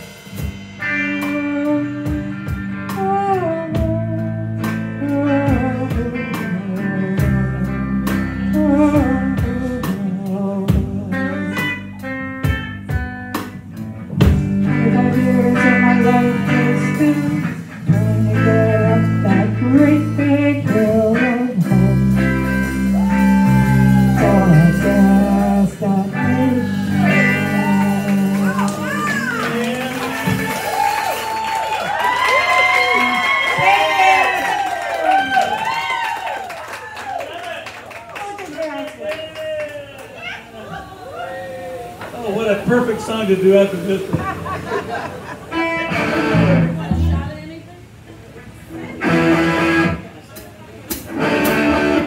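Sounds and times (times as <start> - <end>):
drum kit: 0.0 - 36.0, 43.4 - 47.4, 49.0 - 52.0
bass guitar: 0.0 - 36.4, 40.1 - 52.0
electric guitar: 0.0 - 37.2, 39.4 - 52.0
woman singing: 1.3 - 11.3, 14.3 - 22.5, 23.1 - 30.4.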